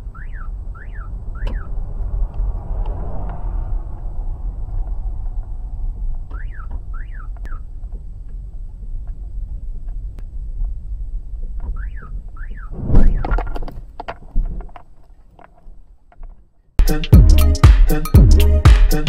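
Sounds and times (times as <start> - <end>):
rising and falling chirps: 0.0 - 7.6
road and engine rumble: 0.0 - 16.5
loud sudden thump: 12.7 - 13.5.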